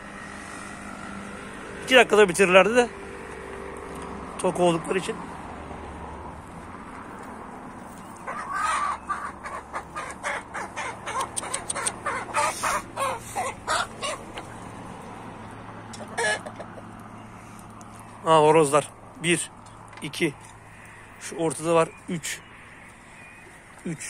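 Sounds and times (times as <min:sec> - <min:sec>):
chickens clucking: 0:08.1 - 0:18.0.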